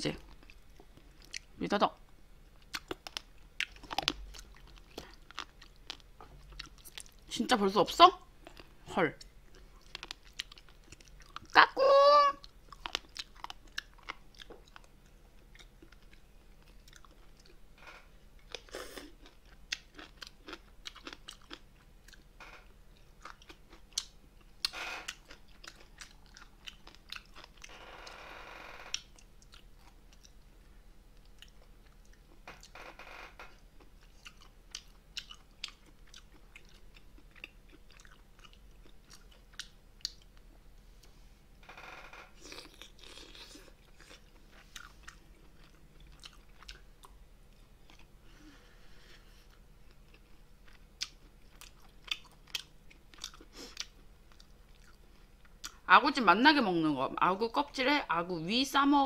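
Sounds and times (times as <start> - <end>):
close chewing and crunching: 0.0 - 1.6, 2.5 - 17.6, 18.3 - 41.2, 42.4 - 55.9.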